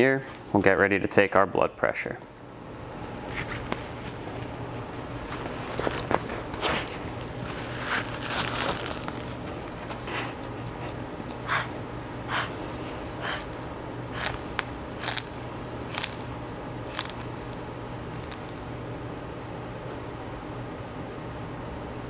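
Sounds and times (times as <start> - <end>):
hand bulb pumping air puffs: 9.6 - 18.6.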